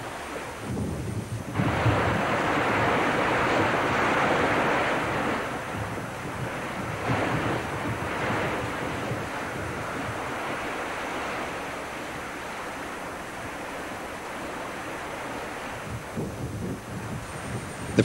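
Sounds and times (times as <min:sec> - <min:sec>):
sea waves breaking: 0:00.0 - 0:18.0
wind rushing: 0:00.7 - 0:10.6, 0:15.8 - 0:18.0.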